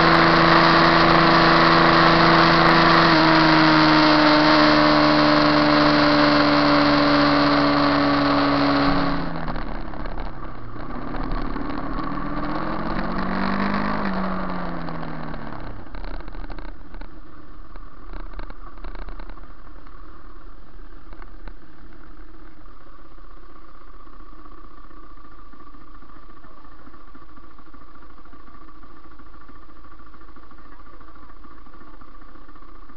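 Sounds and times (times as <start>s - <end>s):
motorcycle engine idling: 7.6s - 32.9s.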